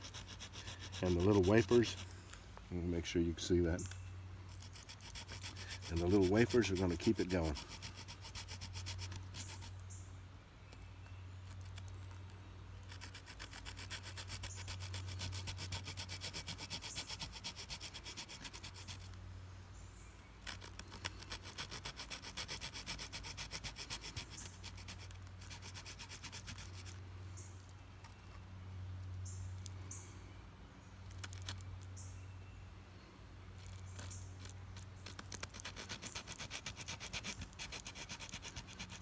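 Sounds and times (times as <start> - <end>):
saw rasping on wood: 0.0 - 2.1, 4.5 - 9.7, 12.9 - 19.1, 20.4 - 27.0, 35.1 - 39.0.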